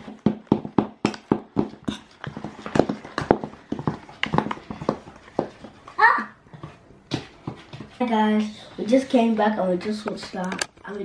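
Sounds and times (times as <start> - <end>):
spoons clinking against metal bowl: 1.8 - 2.2.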